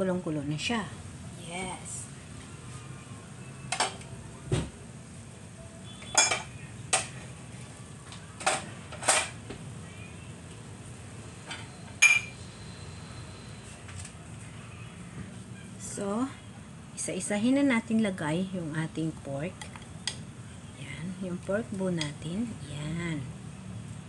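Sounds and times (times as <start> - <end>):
utensils and dishes clinking: 6.0 - 7.1, 8.4 - 9.4, 11.5 - 12.4.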